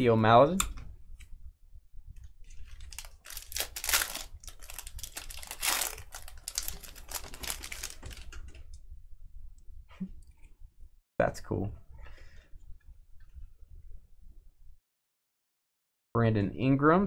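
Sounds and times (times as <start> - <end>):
wrapper crinkling and tearing: 2.5 - 8.4.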